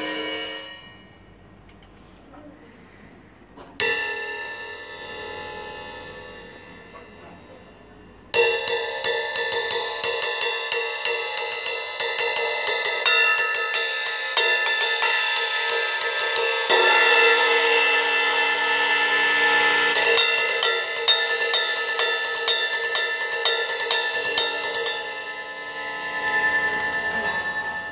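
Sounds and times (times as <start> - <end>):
cymbal ridden with drumstick: 8.3 - 27.9.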